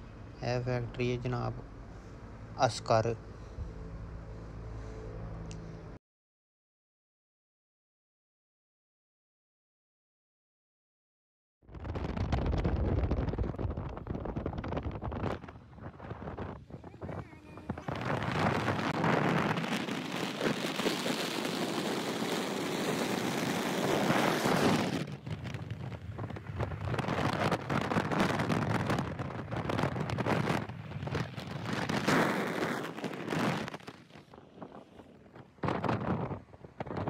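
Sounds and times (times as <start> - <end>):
car road noise: 0.0 - 6.0
wind buffeting phone microphone: 11.8 - 37.0.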